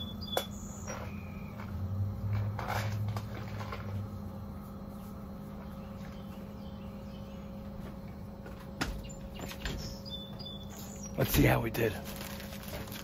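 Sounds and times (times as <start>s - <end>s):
faint bird chirps: 0.0s - 1.7s, 9.0s - 11.2s
deep drone: 0.0s - 13.0s
low mechanical hum: 0.0s - 13.0s.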